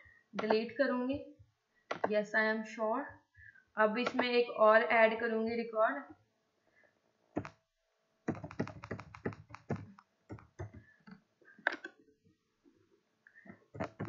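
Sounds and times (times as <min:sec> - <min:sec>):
computer keyboard typing: 0:01.9 - 0:02.1, 0:04.0 - 0:04.2, 0:08.3 - 0:10.8, 0:11.6 - 0:11.9, 0:13.8 - 0:14.0.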